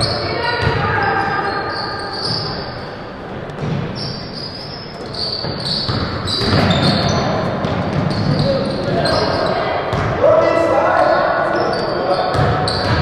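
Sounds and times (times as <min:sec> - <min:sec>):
basketball bouncing on hardwood floor: 0:00.0 - 0:01.2, 0:03.6 - 0:03.9, 0:05.4 - 0:09.2, 0:09.9 - 0:10.2.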